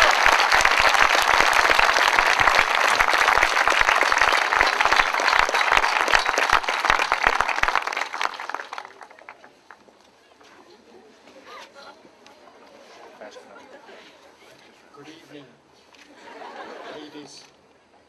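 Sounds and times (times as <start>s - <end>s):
crowd applauding: 0.0s - 9.8s.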